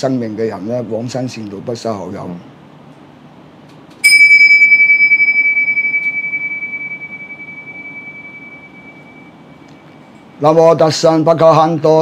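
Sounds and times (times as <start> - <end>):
cymbals struck with high ring: 4.0 - 10.4.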